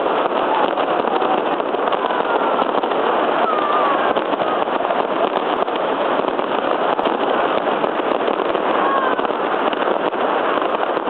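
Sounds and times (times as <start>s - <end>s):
falling firework whistle: 0.0s - 11.0s
firecrackers crackling: 0.0s - 11.0s.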